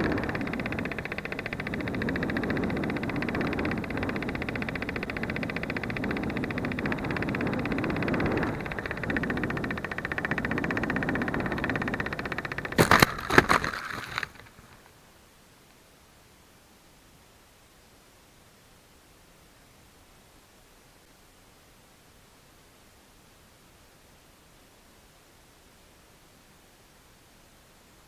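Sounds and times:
rushing air with fast flutter: 0.0s - 14.9s
branches cracking and leaves rustling: 12.8s - 14.8s.

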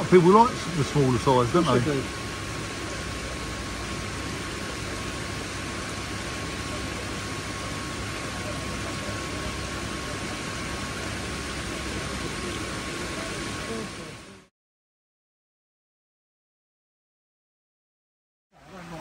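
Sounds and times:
pond water circulation hiss: 0.0s - 14.5s, 18.6s - 19.0s
pump hum: 0.0s - 14.5s, 18.6s - 19.0s.

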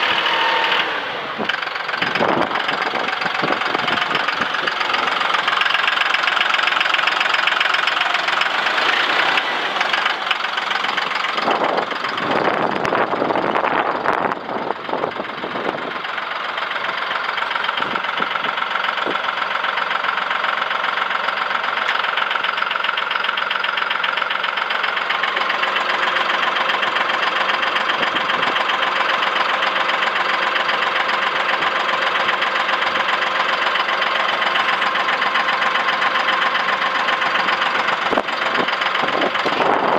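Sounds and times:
tractor diesel engine idling: 0.0s - 39.9s.

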